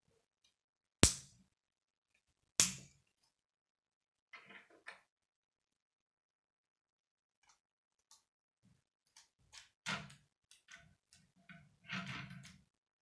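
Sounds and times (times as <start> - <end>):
plastic pieces snapping together: 2.6 - 2.9.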